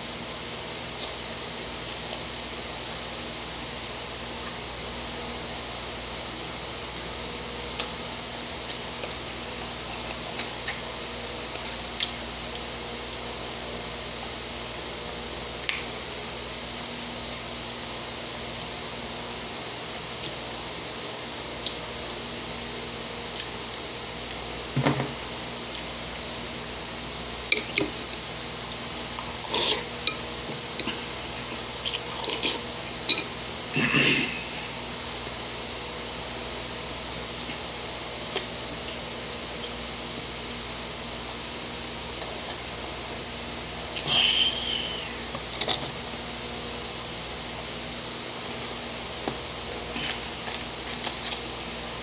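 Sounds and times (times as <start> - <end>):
steady background hiss: 0.0 - 52.0
chewing and smacking: 8.6 - 13.3.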